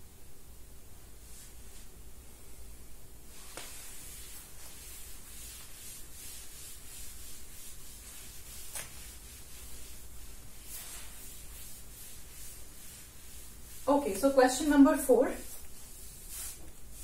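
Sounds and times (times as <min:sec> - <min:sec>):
duster rubbing a chalkboard: 0:03.3 - 0:17.0.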